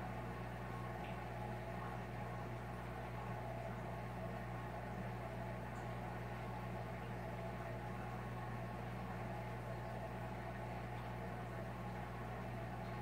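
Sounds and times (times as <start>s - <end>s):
aquarium pump electrical hum: 0.0s - 13.0s.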